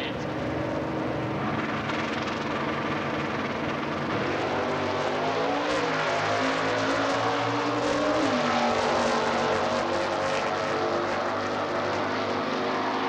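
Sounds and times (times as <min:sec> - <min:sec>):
drag car engines accelerating: 0:00.2 - 0:13.0.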